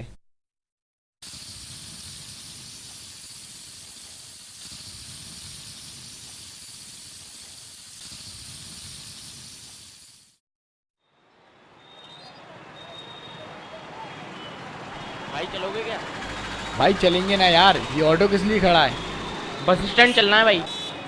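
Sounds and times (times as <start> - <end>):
steady hiss: 1.2 - 10.4.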